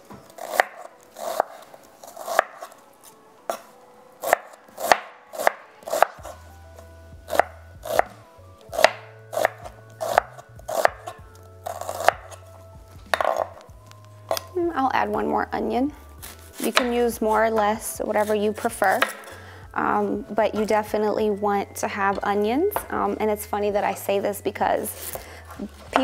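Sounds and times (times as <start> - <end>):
knife slicing onion on board: 0.3 - 2.8, 3.5 - 6.4, 7.3 - 12.4, 13.1 - 13.6, 18.2 - 19.4.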